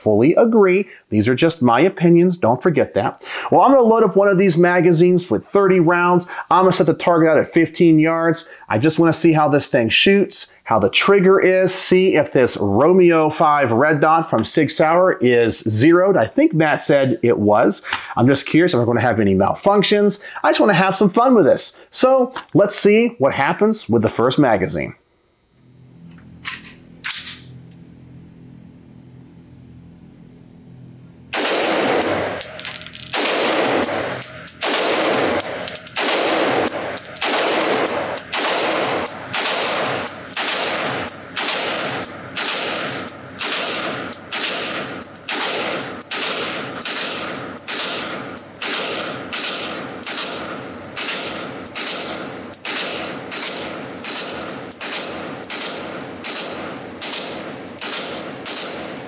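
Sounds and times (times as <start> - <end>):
rifle shots echoing indoors: 31.3 - 59.0.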